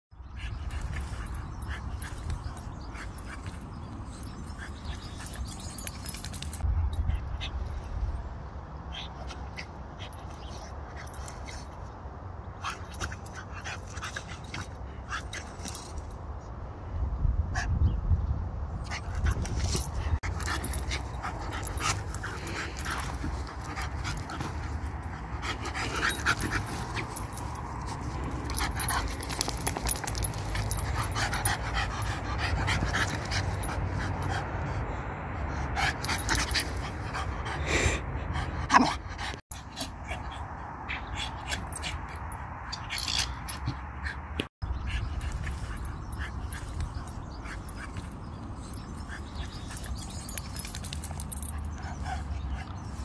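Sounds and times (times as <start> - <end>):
dog panting and vocalizing: 18.9 - 42.4.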